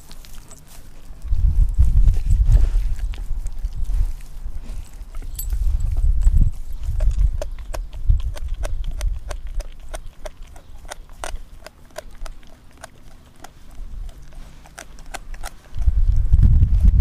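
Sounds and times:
dog teeth crunching on bone: 0:00.0 - 0:16.3
low rumble: 0:00.9 - 0:09.0, 0:15.8 - 0:17.0.

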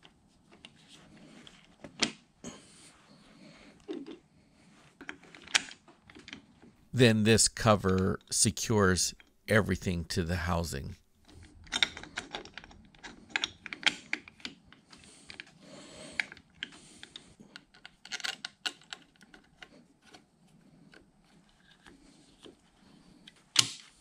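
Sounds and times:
small metal parts clicking: 0:11.6 - 0:14.3.

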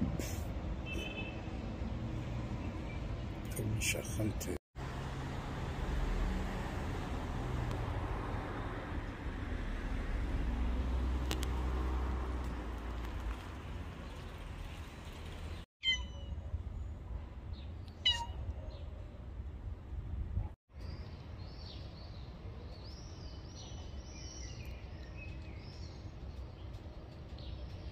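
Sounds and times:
cat meowing: 0:15.8 - 0:16.3, 0:18.0 - 0:18.4.

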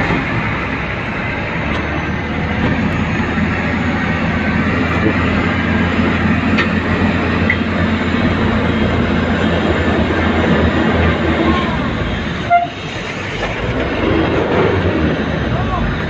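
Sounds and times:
truck diesel engine running: 0:00.0 - 0:16.0.

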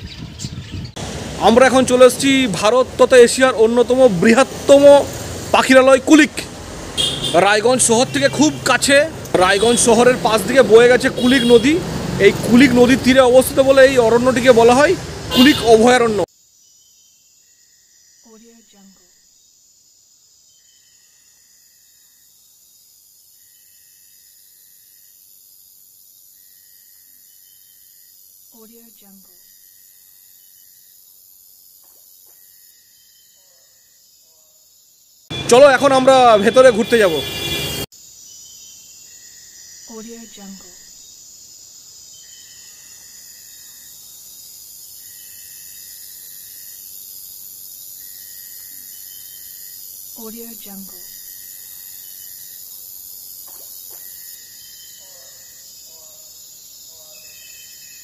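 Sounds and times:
insects buzzing high: 0:01.0 - 0:58.0
insects shrilling: 0:37.8 - 0:58.0.

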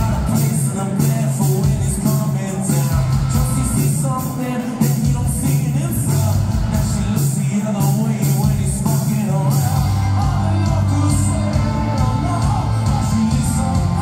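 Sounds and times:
drum and cymbal hits: 0:00.0 - 0:14.0
live rock band playing: 0:00.0 - 0:14.0.

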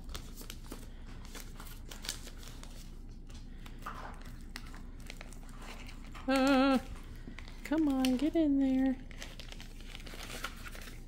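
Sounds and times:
plastic zip bag rustling: 0:04.2 - 0:11.0.

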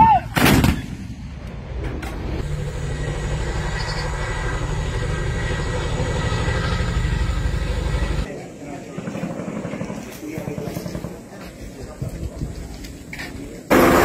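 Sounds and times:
helicopter rotors beating: 0:02.4 - 0:12.6.

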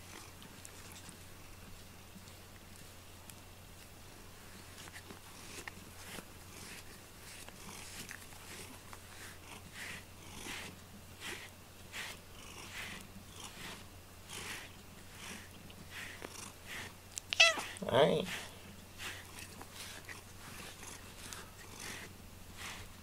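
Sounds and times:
brush stroking cat fur: 0:00.1 - 0:23.0
cat purring: 0:04.7 - 0:23.0.

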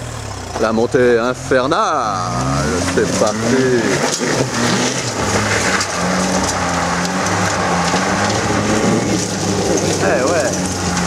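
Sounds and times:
engine running under load: 0:00.0 - 0:11.0
tyres grinding over loose stones: 0:02.1 - 0:11.0.

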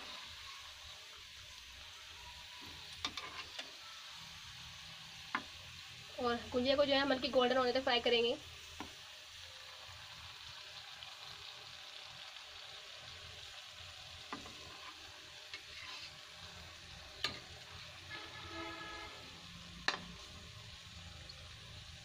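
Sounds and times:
deep-frying sizzle in oil: 0:00.0 - 0:22.0.

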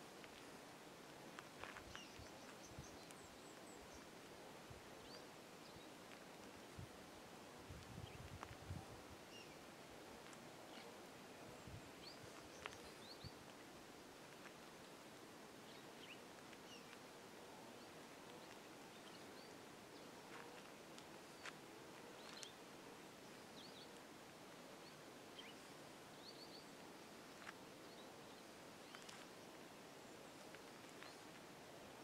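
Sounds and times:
faint bird chirps: 0:01.6 - 0:04.2, 0:08.0 - 0:09.7, 0:10.6 - 0:13.5, 0:15.6 - 0:24.1, 0:24.7 - 0:32.0.

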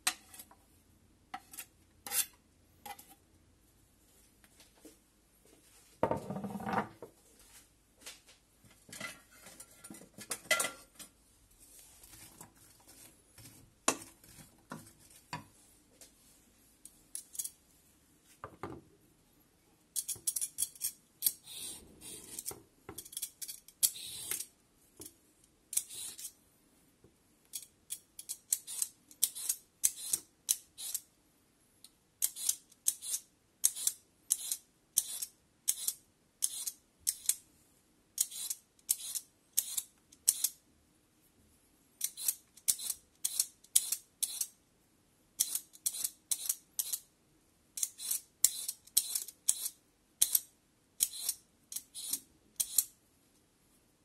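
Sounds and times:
peeler scraping carrot: 0:23.8 - 0:24.4, 0:25.7 - 0:26.3, 0:32.2 - 0:36.8, 0:38.2 - 0:40.5, 0:42.0 - 0:44.5, 0:51.0 - 0:52.9.

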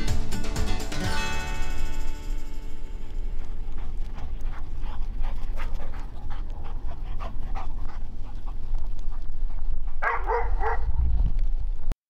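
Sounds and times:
dogs panting: 0:03.2 - 0:10.8.

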